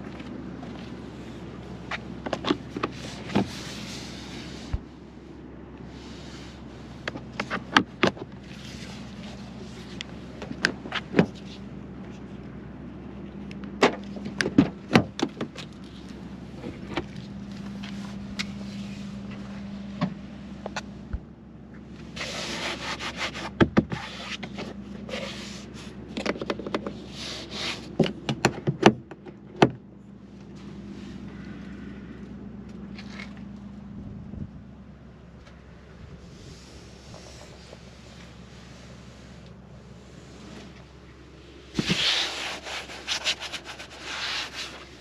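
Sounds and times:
steady low hum: 0.0 - 45.0
rubbing and scraping: 2.5 - 4.8, 22.2 - 26.0, 41.6 - 45.0.

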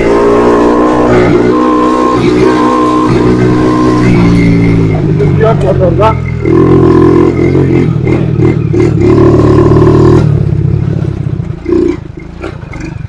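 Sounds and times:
motorcycle engine revving high: 0.0 - 13.0.

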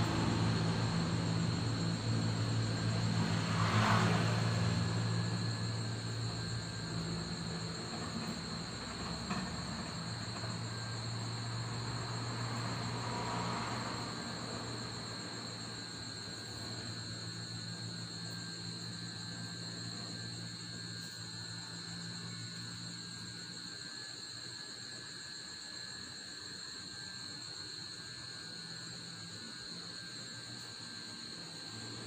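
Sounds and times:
distant traffic rumble: 0.0 - 20.5
crickets trilling: 0.0 - 32.0.

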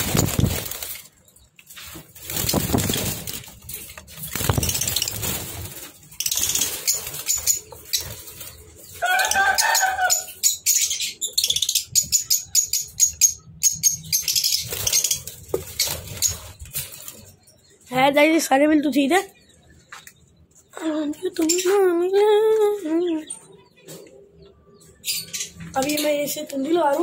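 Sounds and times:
bird wings flapping: 0.0 - 1.1, 1.8 - 8.5
small birds chirping: 0.0 - 27.0.

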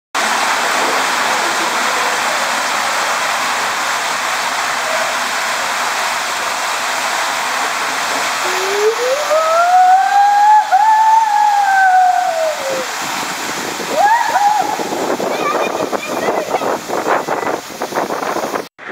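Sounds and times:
rushing water: 0.2 - 18.9
rider's long cry: 13.9 - 15.0.

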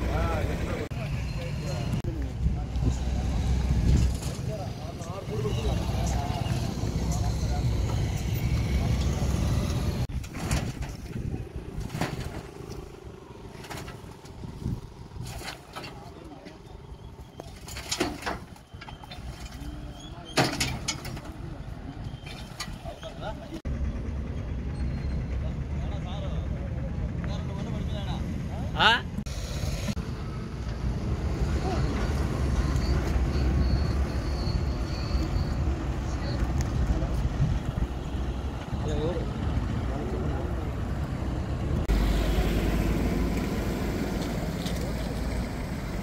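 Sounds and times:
low rumble of fire: 7.8 - 19.8, 36.4 - 41.9
wind buffeting microphone: 9.4 - 12.0, 14.1 - 15.4, 36.4 - 39.6.

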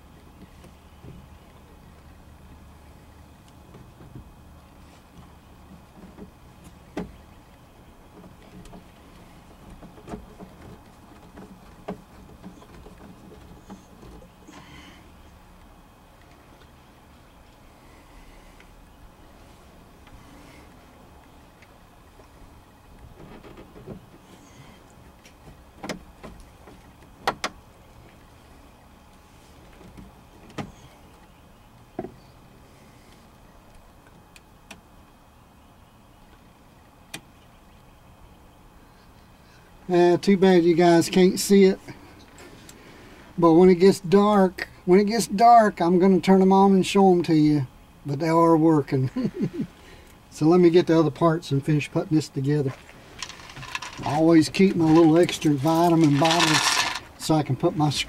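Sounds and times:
low background rumble: 0.0 - 58.0
faint ticks and scrapes: 3.4 - 14.4, 52.6 - 57.4.

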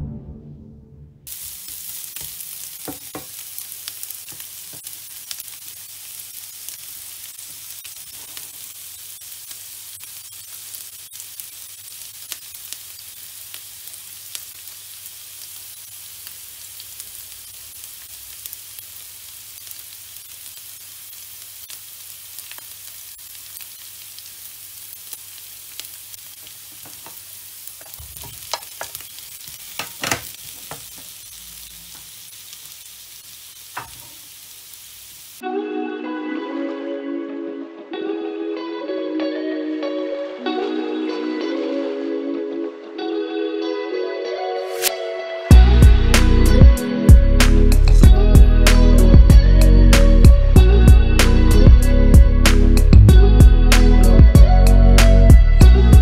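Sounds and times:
vegetables sizzling in a frying pan: 1.3 - 35.5, 44.6 - 56.0
clatter and knocks in pan: 27.8 - 29.0, 29.8 - 31.1
wooden spatula scraping and tapping: 27.8 - 29.0.

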